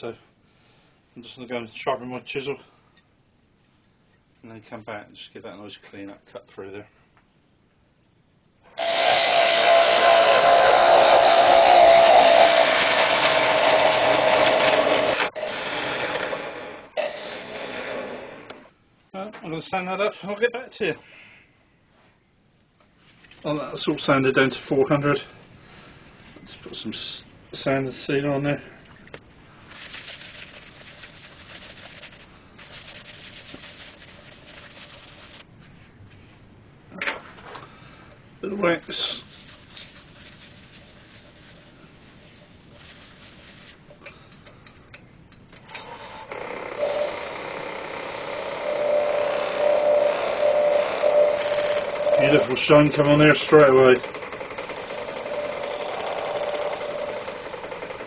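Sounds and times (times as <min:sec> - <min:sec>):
wood lathe gouge cutting: 0:08.8 - 0:18.7, 0:45.7 - 0:58.0
cloth rubbing on spinning bowl: 0:29.6 - 0:35.8, 0:39.0 - 0:43.9
steady whine: 0:45.7 - 0:58.0.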